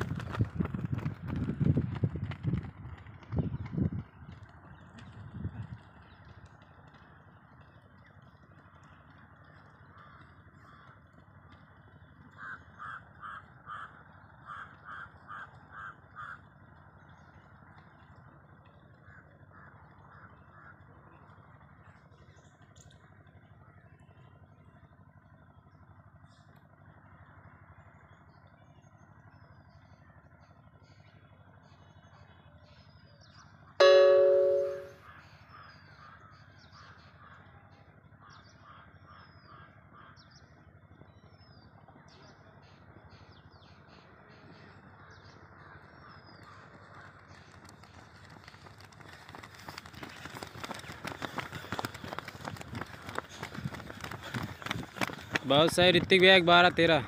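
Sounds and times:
crow cawing: 0:12.4 - 0:16.4.

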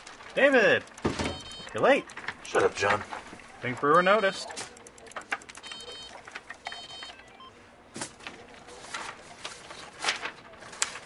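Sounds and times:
paper rustling: 0:00.0 - 0:01.4, 0:02.0 - 0:03.8, 0:06.1 - 0:06.6, 0:08.0 - 0:11.0.

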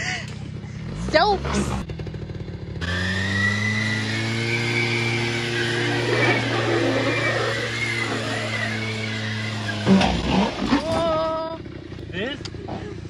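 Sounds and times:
quad bike engine running: 0:00.0 - 0:13.0
higher wavering whine: 0:03.6 - 0:09.9.

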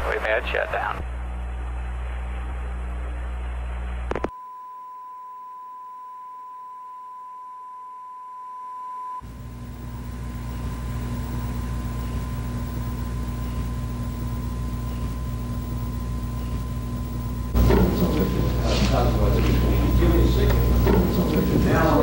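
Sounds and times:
radio hum and hiss: 0:00.0 - 0:04.4, 0:09.2 - 0:22.0
steady test tone: 0:01.1 - 0:22.0.

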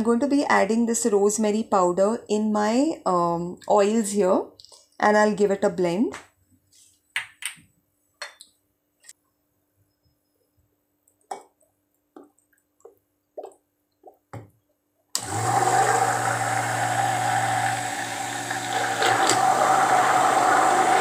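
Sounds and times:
stick blender running: 0:15.2 - 0:21.0.

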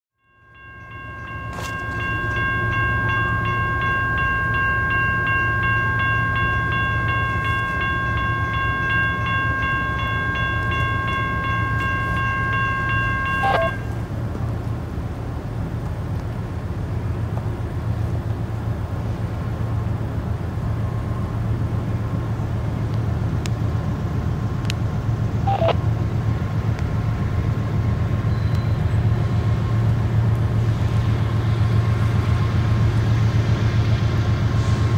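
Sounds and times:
diesel engines rumbling: 0:00.6 - 0:34.9.

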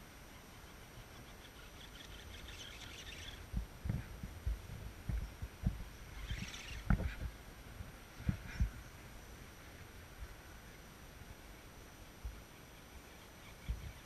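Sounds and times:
faint hiss: 0:00.0 - 0:14.0
wind buffeting microphone: 0:03.2 - 0:10.4.

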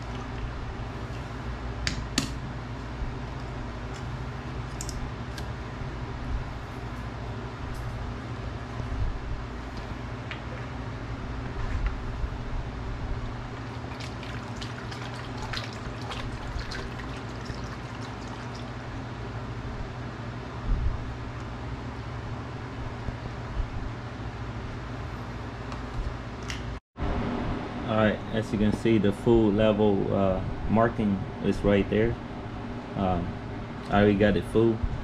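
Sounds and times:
coolant trickling into reservoir: 0:13.5 - 0:19.2.

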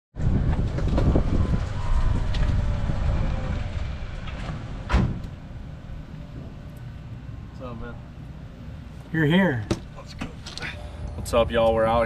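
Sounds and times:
wind buffeting microphone: 0:00.2 - 0:07.4
sharp thump: 0:04.3 - 0:05.4.

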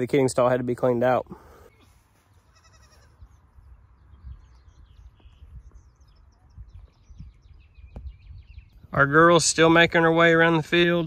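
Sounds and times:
faint bird chirps: 0:01.4 - 0:08.9
goat kid bleating: 0:01.8 - 0:03.2.

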